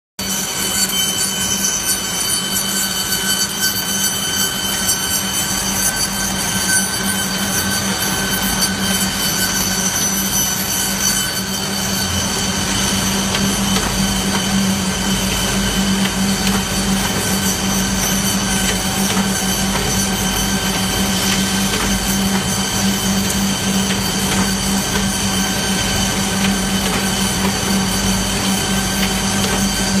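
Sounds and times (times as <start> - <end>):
sorting machine humming and whining: 0.2 - 30.0.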